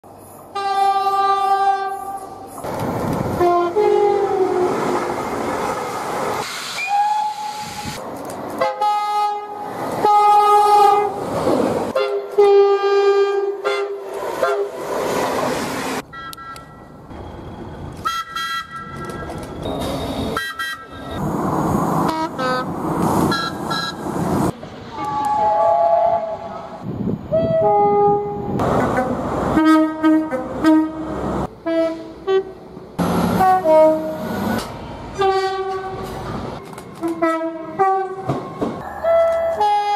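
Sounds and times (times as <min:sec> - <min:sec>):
trains rushing past: 0:00.1 - 0:12.8, 0:13.6 - 0:39.9
high-pitched train horn: 0:00.5 - 0:02.3, 0:12.0 - 0:14.7, 0:24.9 - 0:26.7, 0:31.6 - 0:32.6, 0:33.4 - 0:34.3, 0:35.2 - 0:36.1, 0:37.0 - 0:39.9
train horn blasts: 0:00.5 - 0:02.3, 0:08.6 - 0:11.2, 0:12.0 - 0:14.7, 0:24.9 - 0:26.6, 0:27.3 - 0:32.6, 0:33.4 - 0:34.3, 0:35.2 - 0:36.1, 0:37.0 - 0:38.3, 0:39.0 - 0:39.9.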